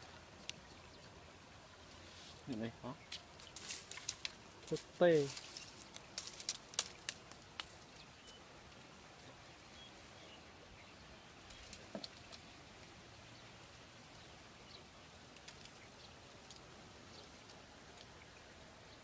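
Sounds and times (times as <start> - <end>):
soft clicks and crackles: 1.8 - 9.3, 11.4 - 12.9, 15.3 - 18.2.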